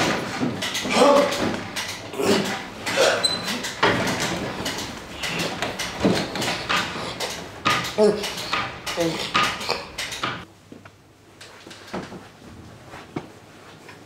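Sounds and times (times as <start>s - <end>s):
person grunting: 0.8s - 1.4s, 2.1s - 3.3s, 9.0s - 10.0s
fabric rustling: 11.6s - 14.0s.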